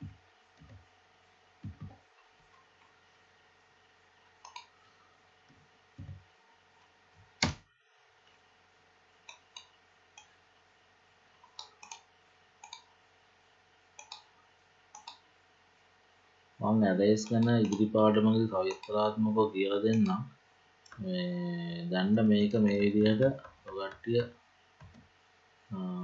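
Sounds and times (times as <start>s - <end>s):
keyboard and mouse clicks: 4.4s - 4.7s, 11.4s - 12.9s, 14.0s - 14.3s, 15.0s - 15.2s, 17.2s - 17.9s, 18.7s - 19.0s.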